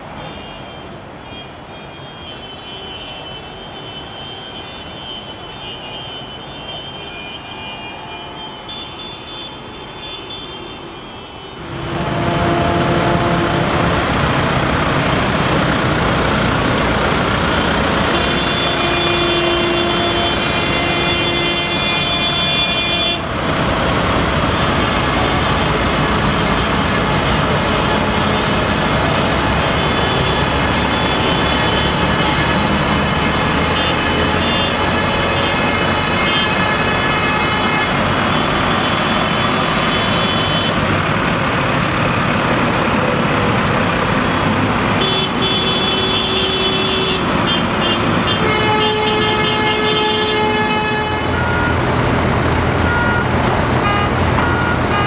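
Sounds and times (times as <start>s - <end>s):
tractor horns honking: 0.0s - 42.2s, 42.8s - 55.0s
tractor engines running: 11.6s - 55.0s.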